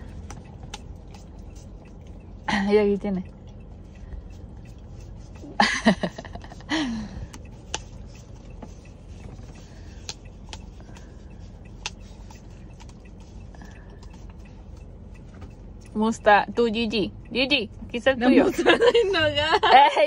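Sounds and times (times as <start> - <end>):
dog licking: 0.1 - 5.5.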